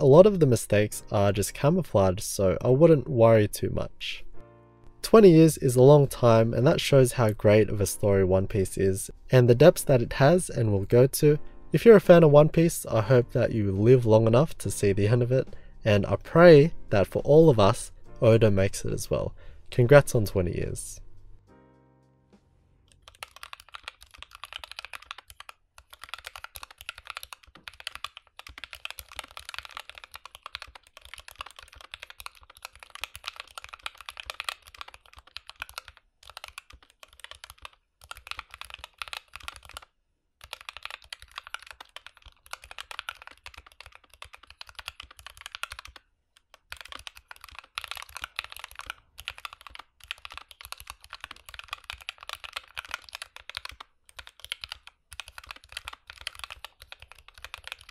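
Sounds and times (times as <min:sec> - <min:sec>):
mechanical keyboard typing: 0:22.9 - 0:57.9.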